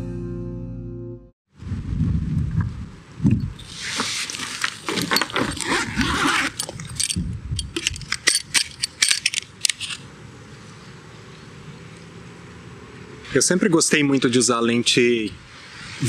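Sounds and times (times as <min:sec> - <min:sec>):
backpack rustling: 0:03.6 - 0:07.2.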